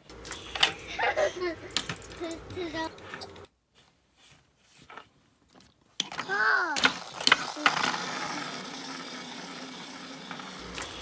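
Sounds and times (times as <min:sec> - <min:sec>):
toy airplane motor whirring: 0:06.3 - 0:11.0.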